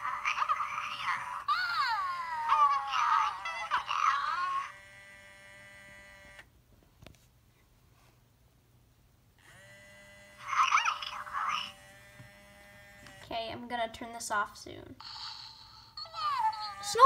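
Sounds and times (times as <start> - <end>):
electronic toy chirping and babbling: 0.1 - 4.7, 15.8 - 17.0.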